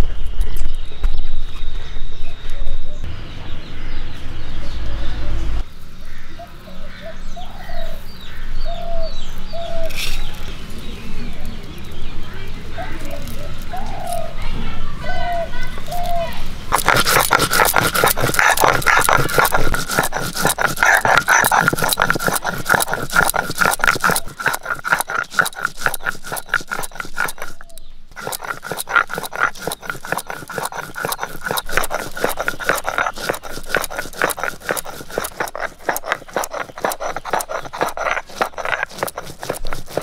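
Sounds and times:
stone roller grinding seeds: 9.7s - 10.6s, 12.8s - 14.5s, 15.1s - 40.0s.

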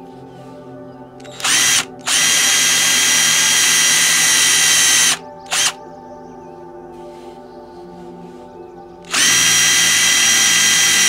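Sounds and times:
power drill cutting plywood: 1.2s - 5.8s, 9.1s - 11.0s.

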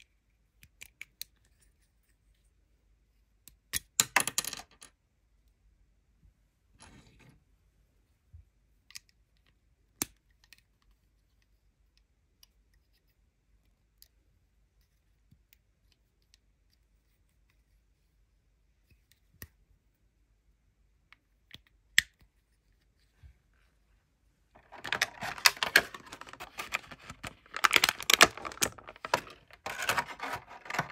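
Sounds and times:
small plastic clicks and taps: 0.6s - 1.5s, 21.0s - 22.3s.

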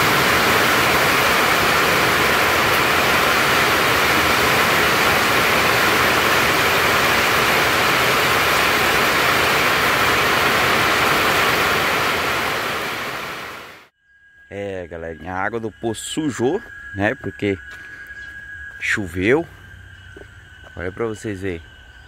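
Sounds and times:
heavy rain pouring: 0.0s - 13.9s.

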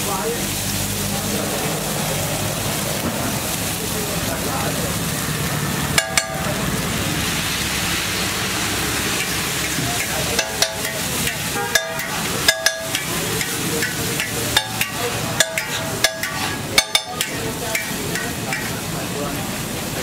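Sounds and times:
egg sizzling on griddle: 0.0s - 20.0s
spatula clanging on griddle: 5.9s - 6.7s, 9.1s - 18.9s.

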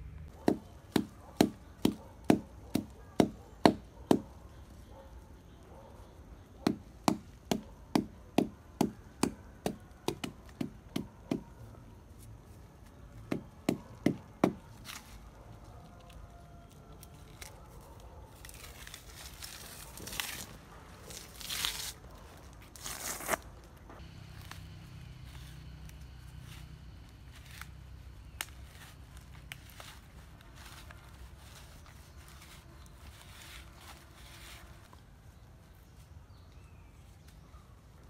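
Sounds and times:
stone chopping wood: 0.4s - 4.3s, 6.6s - 11.4s, 13.3s - 14.6s
bark tearing: 13.8s - 23.5s.

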